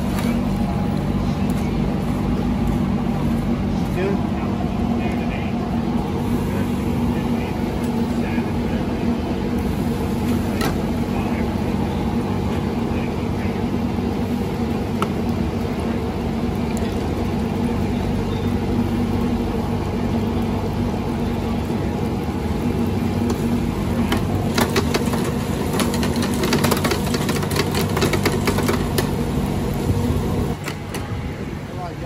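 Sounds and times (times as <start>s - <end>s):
low mechanical hum: 0.0s - 32.0s
fish frying in oil: 5.3s - 30.6s.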